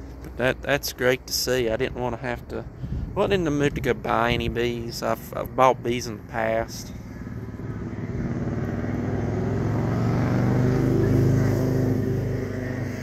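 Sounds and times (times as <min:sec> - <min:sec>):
vehicle engine passing by: 0:06.2 - 0:13.0.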